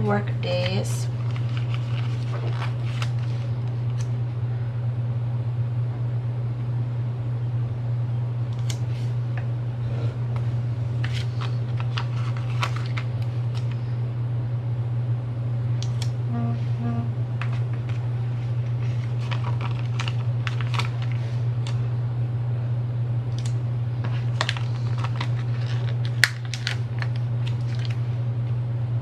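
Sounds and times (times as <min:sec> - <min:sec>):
low hum: 0:09.6 - 0:20.8.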